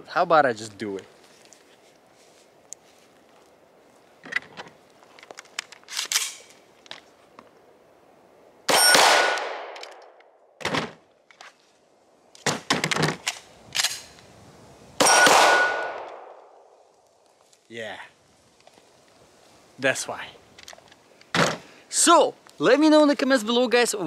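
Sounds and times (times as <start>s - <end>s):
gun handling clicks and rattles: 4.2s - 7.1s, 9.7s - 10.3s, 12.3s - 14.2s, 20.5s - 21.3s
gunshot: 8.7s - 9.8s, 15.0s - 16.3s.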